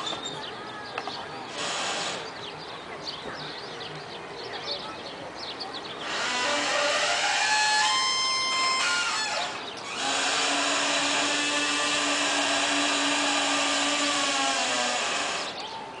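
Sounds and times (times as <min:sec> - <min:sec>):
small motor whining: 0:01.5 - 0:02.3, 0:06.0 - 0:15.6.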